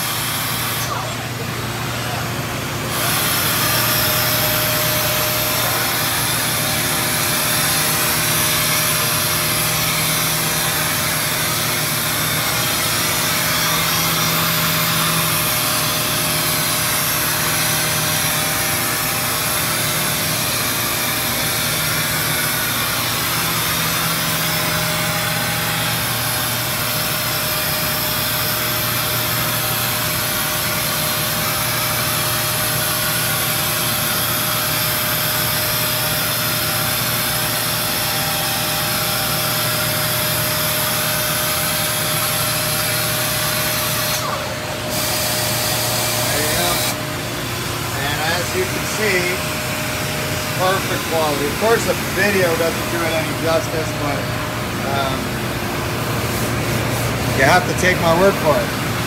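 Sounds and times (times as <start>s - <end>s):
power sanders hissing: 2.8s - 58.8s.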